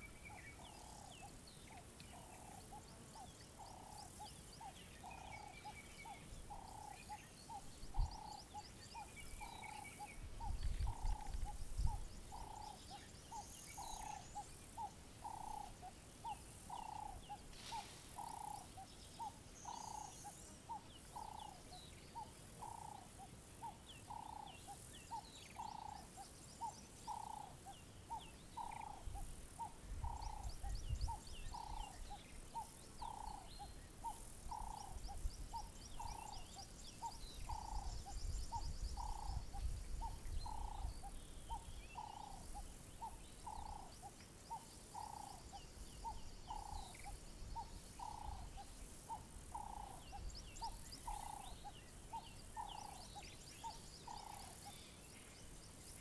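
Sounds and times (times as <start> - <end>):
birds chirping and trilling: 0.0 - 56.0
wind rumble on microphone: 7.6 - 8.4, 10.1 - 12.7, 28.8 - 32.2, 37.2 - 42.3.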